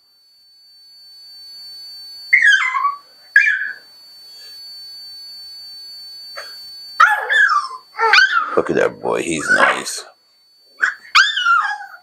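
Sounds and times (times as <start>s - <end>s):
puppy whining: 2.3s - 3.9s, 6.4s - 8.6s, 9.4s - 10.0s, 10.8s - 12.0s
faint high tone: 8.0s - 10.1s.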